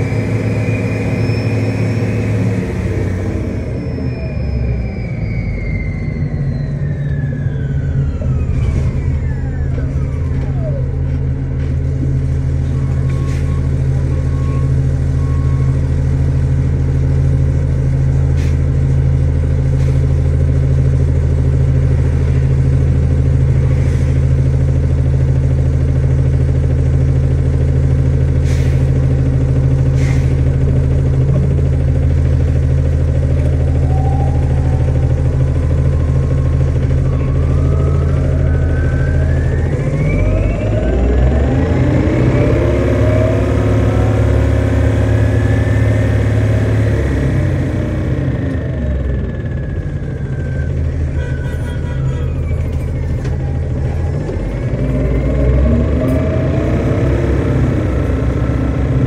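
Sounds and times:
diesel engine idling: 0:00.0 - 0:59.0.

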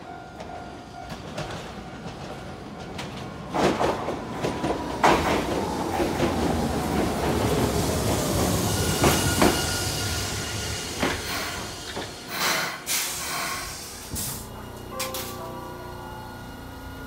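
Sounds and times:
tram electric whine: 0:00.0 - 0:17.0
compressed air hissing: 0:10.0 - 0:14.5.

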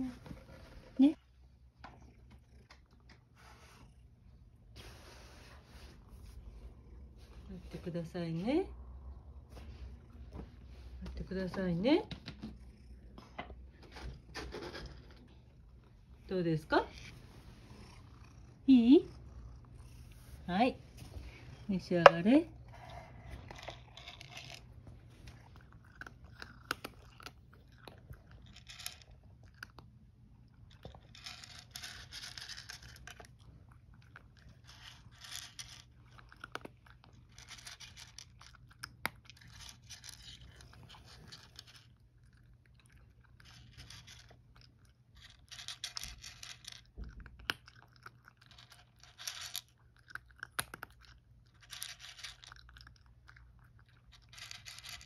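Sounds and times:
cat crunching dry kibble: 0:21.3 - 0:55.0.

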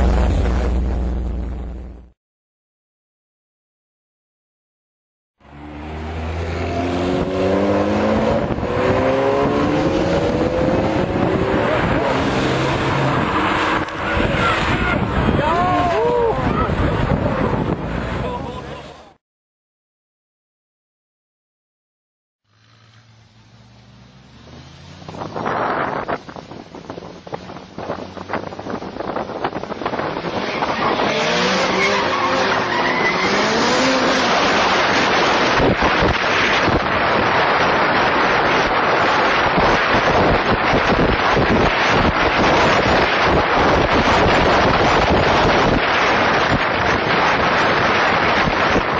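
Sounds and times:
road and wind noise: 0:00.0 - 0:02.1, 0:05.4 - 0:19.2, 0:22.5 - 0:48.9
car engine whine: 0:00.0 - 0:02.2, 0:05.4 - 0:19.2, 0:22.5 - 0:48.9
sports car engines accelerating: 0:05.4 - 0:15.5.

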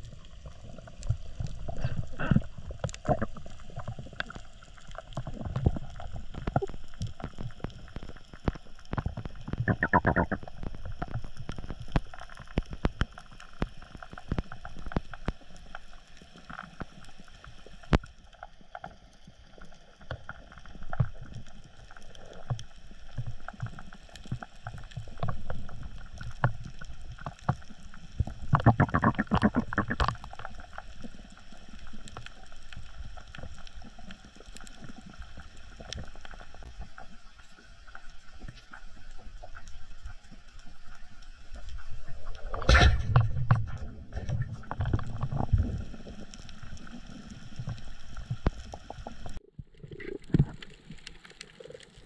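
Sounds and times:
underwater water noise: 0:00.0 - 0:52.0
underwater clicks and knocks: 0:01.0 - 0:04.4, 0:05.1 - 0:15.1, 0:23.2 - 0:30.5, 0:41.6 - 0:45.9.

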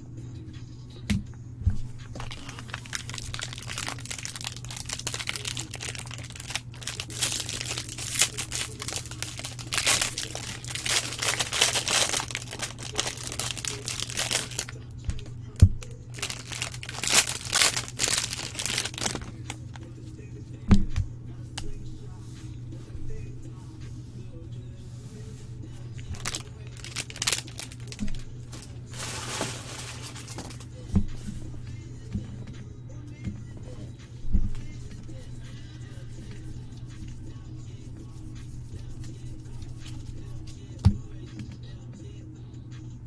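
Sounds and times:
foil wrapper crinkling and tearing: 0:02.2 - 0:14.8, 0:16.1 - 0:19.8, 0:26.1 - 0:30.7.

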